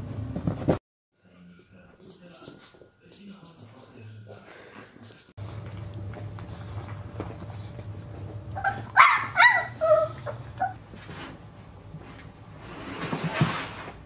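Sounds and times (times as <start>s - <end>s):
puppy yipping and whining: 8.6s - 10.8s
puppy sliding down plastic slide: 12.6s - 14.0s.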